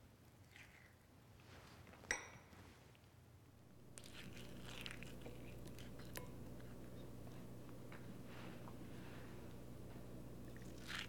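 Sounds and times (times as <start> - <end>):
spoon scraping avocado: 3.8 - 11.0.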